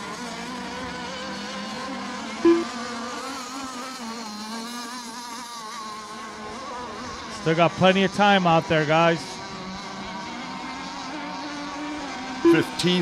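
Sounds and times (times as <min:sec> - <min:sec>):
small boat engines buzzing: 0:00.0 - 0:13.0
loud flat tone: 0:02.4 - 0:02.7, 0:12.4 - 0:13.0.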